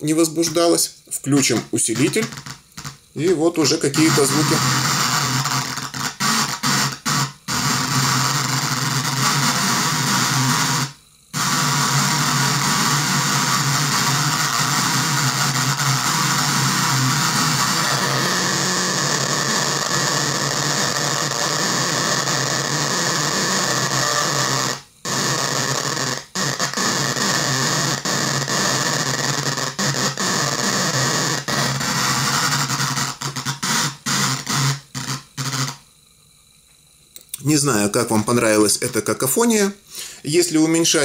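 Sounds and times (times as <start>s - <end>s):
buzzing loudspeaker cacophony: 0.0s - 10.8s, 37.4s - 41.0s.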